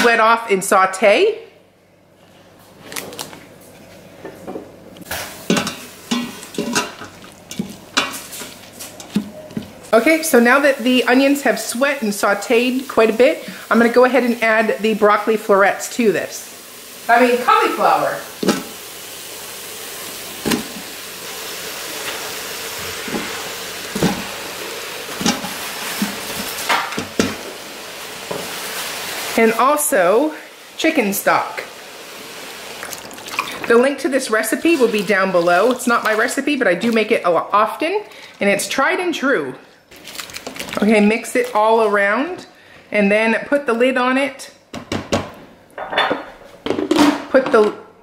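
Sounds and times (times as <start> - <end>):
light sizzle: 4.9 - 42.8
spoon scraping and knocking pot: 5.5 - 9.7.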